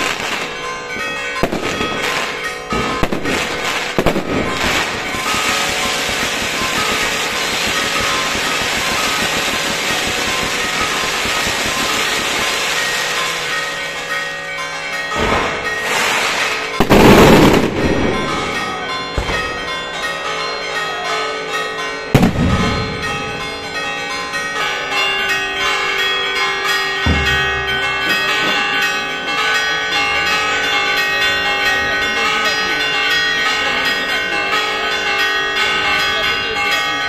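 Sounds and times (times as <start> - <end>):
church bells pealing: 0.0 - 37.0
loud firework bang: 15.2 - 18.3, 22.2 - 22.9.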